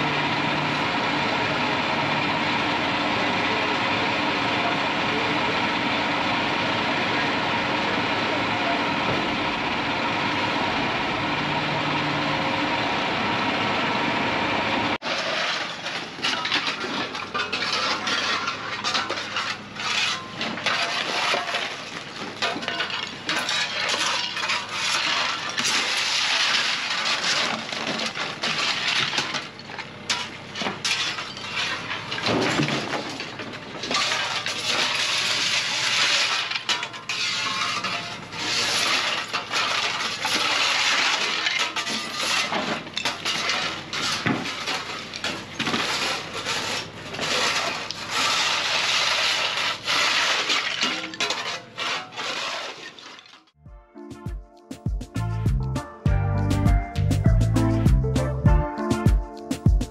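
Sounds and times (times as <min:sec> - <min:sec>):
truck engine running: 0:00.0 - 0:50.8
debris clattering into metal dumpster: 0:15.0 - 0:53.6.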